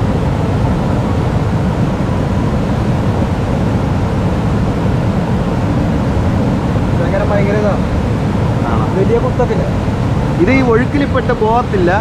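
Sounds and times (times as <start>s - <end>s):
fast-flowing river water: 0.0s - 12.0s
waterfall roaring: 0.0s - 12.0s.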